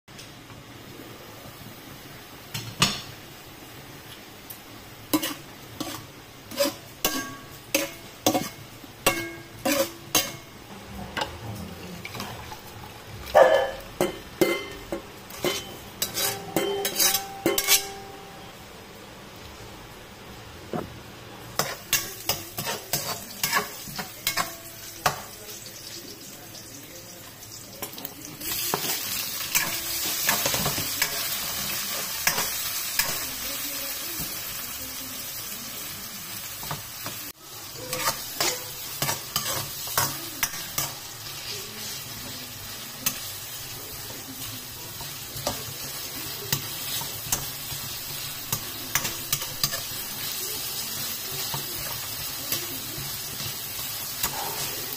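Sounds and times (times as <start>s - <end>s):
vegetables sizzling in hot oil: 0.2s - 10.8s, 12.0s - 20.4s, 21.1s - 54.9s
metal spoon scraping frying pan: 5.1s - 10.5s, 13.4s - 18.1s, 21.6s - 24.7s, 37.8s - 41.0s.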